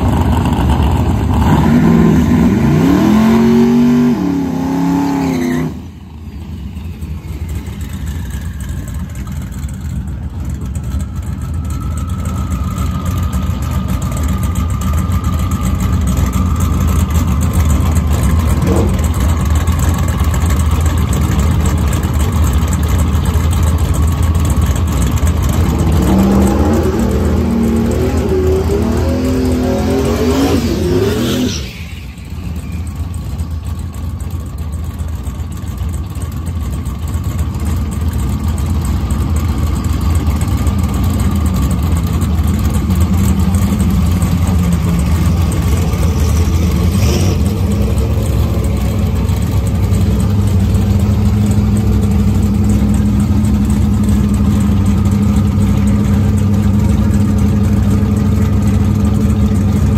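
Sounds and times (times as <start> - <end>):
truck engine running: 0.0 - 59.9.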